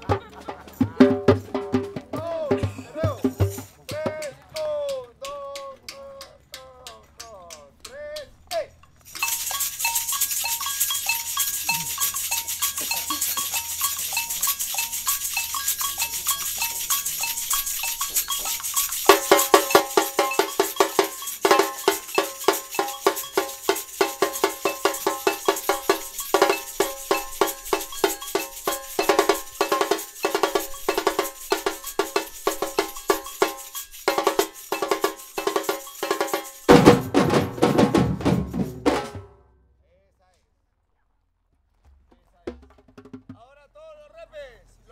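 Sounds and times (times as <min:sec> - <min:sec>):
fast samba drums: 0:00.0 - 0:04.6, 0:09.2 - 0:39.4, 0:41.9 - 0:43.5
shakers: 0:00.0 - 0:07.6, 0:08.4 - 0:38.9
agogo bells: 0:08.8 - 0:39.0.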